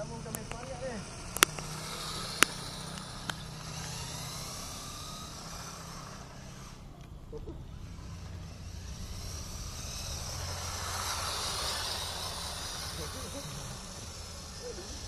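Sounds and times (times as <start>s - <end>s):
steady low hum: 0.0s - 15.0s
toy car motor whining: 0.0s - 15.0s
sharp clicks: 0.2s - 7.2s.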